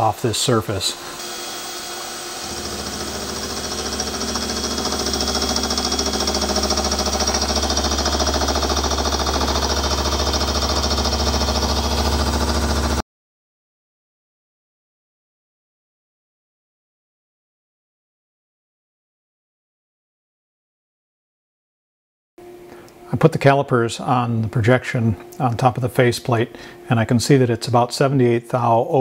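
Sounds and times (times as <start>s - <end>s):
end mill cutting metal: 0.0s - 13.0s
low machine hum: 0.0s - 13.0s, 22.4s - 28.9s.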